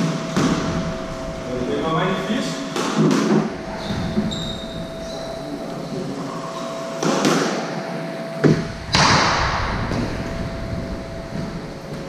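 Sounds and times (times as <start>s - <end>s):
loud burst of noise: 0.0s - 6.5s, 8.4s - 12.0s
faint steady hum: 0.0s - 12.0s
shoe squeak: 3.7s - 5.6s.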